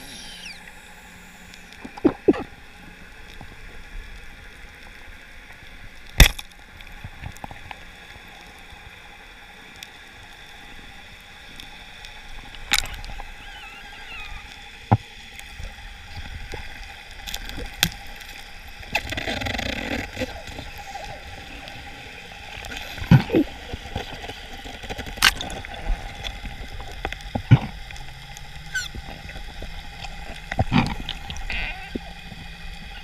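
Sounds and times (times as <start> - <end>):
underwater hiss: 0.0 - 5.2, 8.0 - 24.8.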